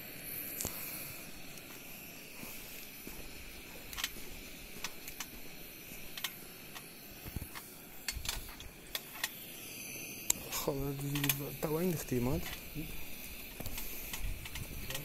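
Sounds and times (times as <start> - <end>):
faint steady hiss: 0.0 - 15.0
footsteps on soft floor: 1.7 - 5.5.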